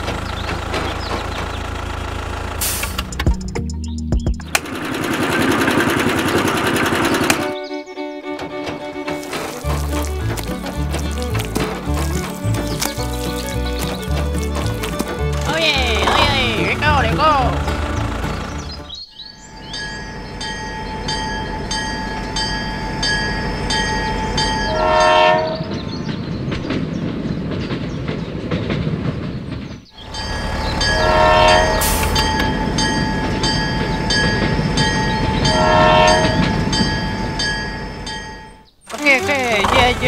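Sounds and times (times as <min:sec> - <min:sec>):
toy train horn toots: 0:24.7 - 0:25.6, 0:30.8 - 0:32.6, 0:35.4 - 0:36.7.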